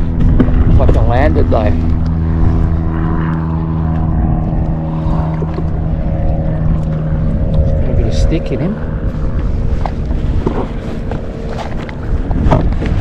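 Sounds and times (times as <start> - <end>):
engine humming steadily: 0.0 - 13.0.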